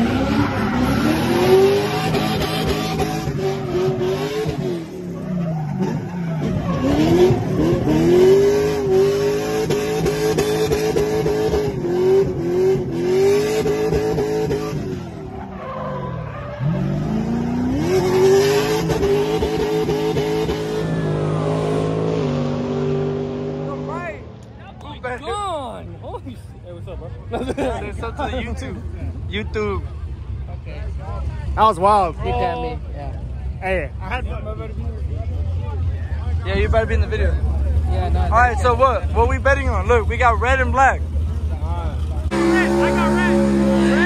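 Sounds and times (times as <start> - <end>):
car engine revving high: 0.0 - 15.5, 16.1 - 24.2, 37.0 - 44.0.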